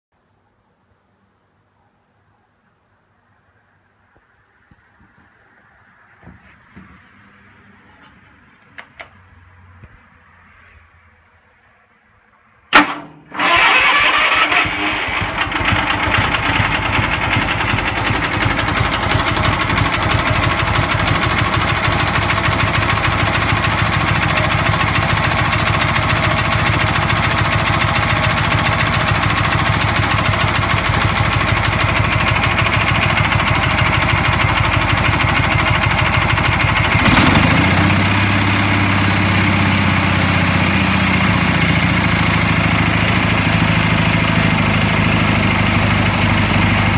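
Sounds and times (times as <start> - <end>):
garden tractor engine running: 12.7 - 46.9.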